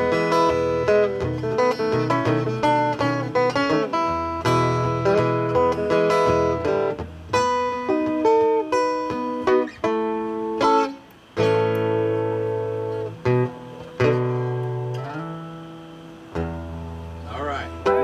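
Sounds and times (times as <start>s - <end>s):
acoustic guitar picking: 0.0s - 18.0s.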